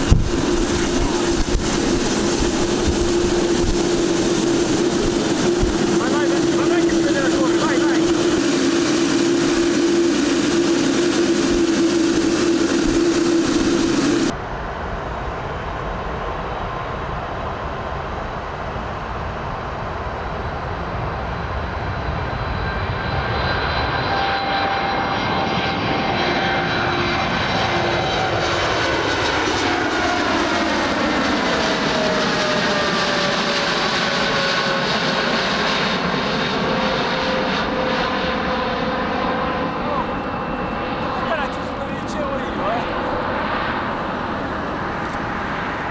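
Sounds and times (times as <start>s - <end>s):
whining engine tones: 0.0s - 14.4s
jet engines taxiing: 0.0s - 45.9s
jet takeoff roar: 0.0s - 45.9s.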